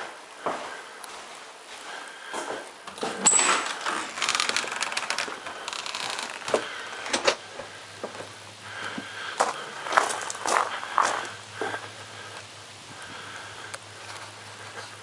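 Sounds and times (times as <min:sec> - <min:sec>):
footsteps knocking: 0:06.5 - 0:08.4.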